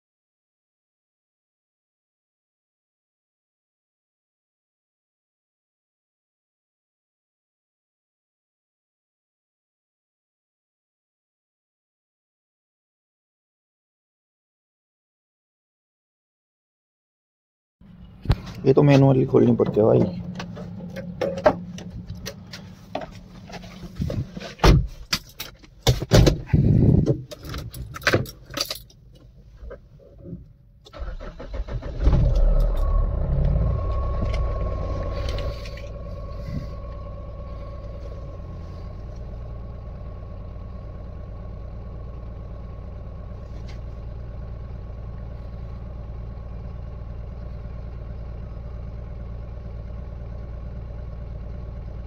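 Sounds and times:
diesel engine starting and idling: 17.8s - 52.0s
handling knocks and clicks: 18.2s - 29.9s
thin steady whine: 32.3s - 44.3s.

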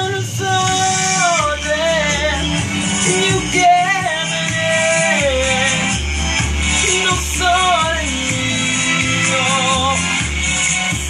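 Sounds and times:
pulsing bass beat: 0.0s - 11.0s
wavering melody line: 0.8s - 10.0s.

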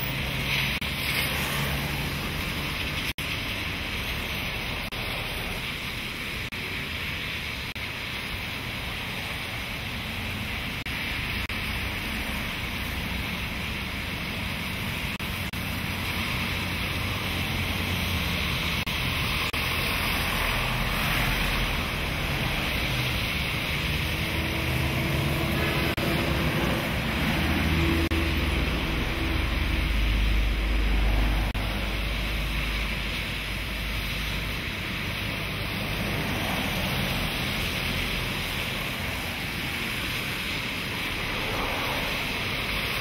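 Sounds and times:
tyres swishing through water: 0.0s - 43.0s
low engine rumble: 20.3s - 39.9s.

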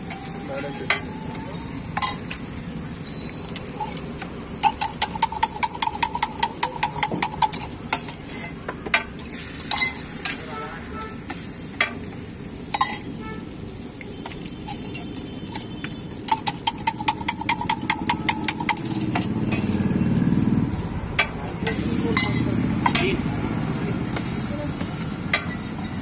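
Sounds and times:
griddle sizzling: 0.0s - 26.0s.

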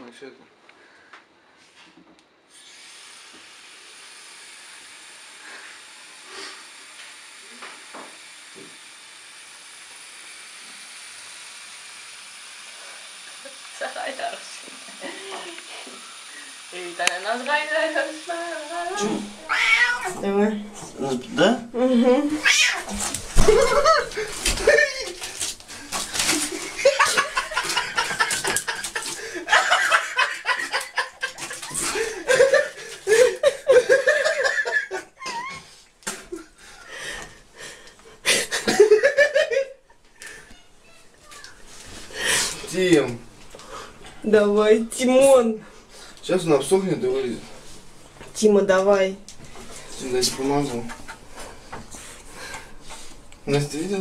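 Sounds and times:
people laughing: 13.5s - 15.9s, 23.4s - 37.2s, 38.2s - 40.4s.

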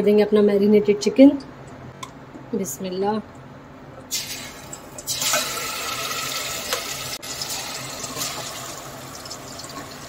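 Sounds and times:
chicken sizzling in hot oil: 4.1s - 10.0s.

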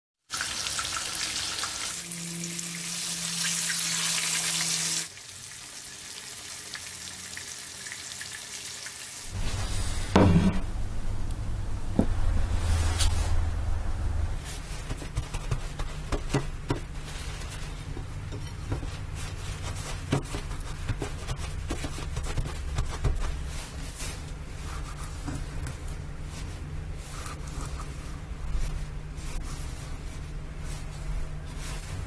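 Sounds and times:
steady low hum: 9.3s - 32.0s
paper towel rubbing fish: 14.4s - 32.0s.

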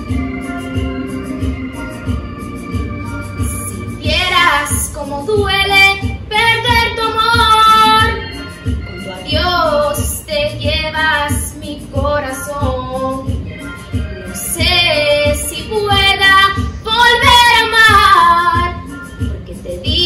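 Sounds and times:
backing music with steady beat: 0.0s - 20.0s
young female voice singing: 3.4s - 13.3s, 14.0s - 20.0s.

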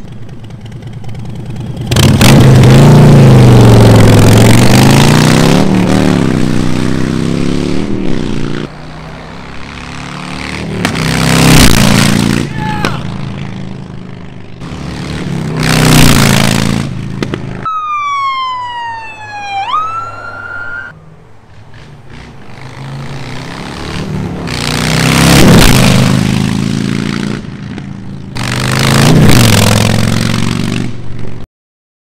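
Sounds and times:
motorcycle riding past: 0.0s - 20.9s, 21.5s - 31.4s
wailing siren-like tone: 17.6s - 21.0s.

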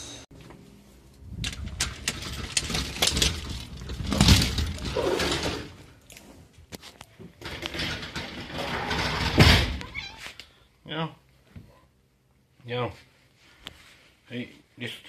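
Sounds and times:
sliding glass door rattling: 1.4s - 6.0s, 7.3s - 10.0s.

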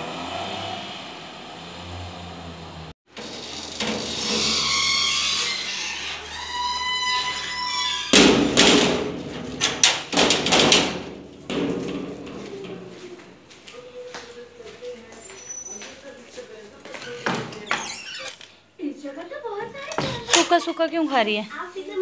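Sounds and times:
metal gate clanking shut: 3.1s - 12.8s, 19.8s - 20.8s
metal gate squealing: 3.2s - 8.7s, 19.9s - 21.0s.

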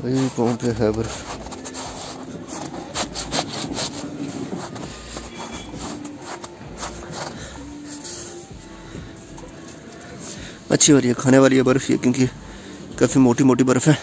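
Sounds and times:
boots crunching through snow: 0.0s - 9.3s.

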